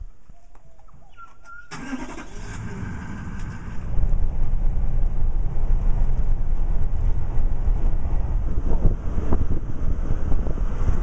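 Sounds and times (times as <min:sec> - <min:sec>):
vehicle rumbling on dirt track: 0:02.4 - 0:11.0.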